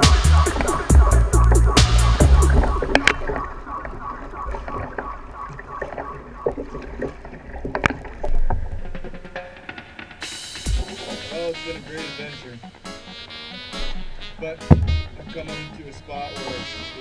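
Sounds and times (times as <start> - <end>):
water splashing along kayak hull: 0.0 - 17.0
low bump: 10.6 - 11.6, 13.7 - 15.5
sharp knock: 14.7 - 15.2.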